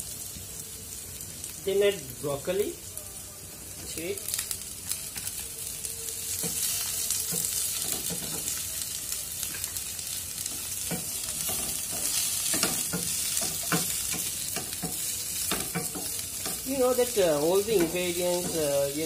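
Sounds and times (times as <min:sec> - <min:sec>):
vegetables sizzling in oil: 0:00.0 - 0:19.0.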